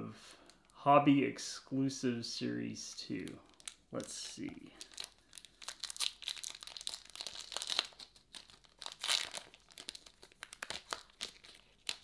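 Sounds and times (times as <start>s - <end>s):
foil wrapper tearing and crinkling: 3.5s - 3.8s, 4.8s - 12.0s.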